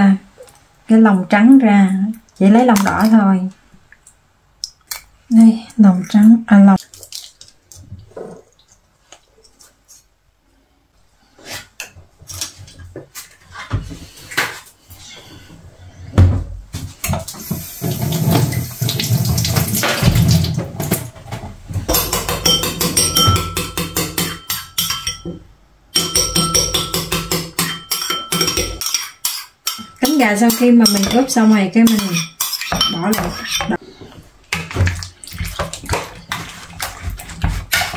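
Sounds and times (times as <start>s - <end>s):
running tap water: 17.2s - 21.1s
spoon clinking against ceramic bowl: 21.9s - 25.4s, 26.0s - 33.7s.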